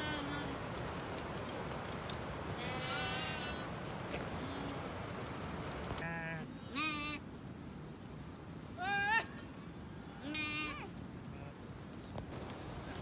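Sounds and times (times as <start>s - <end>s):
steady background hiss: 0.0s - 13.0s
sheep bleating: 2.6s - 3.7s, 6.0s - 7.2s, 10.2s - 10.9s.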